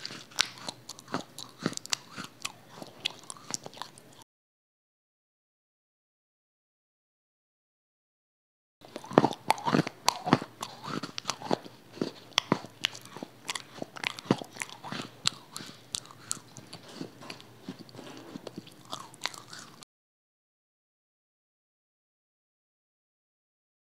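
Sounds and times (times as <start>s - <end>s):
person chewing crispy chicken: 0.0s - 4.2s, 8.8s - 19.8s.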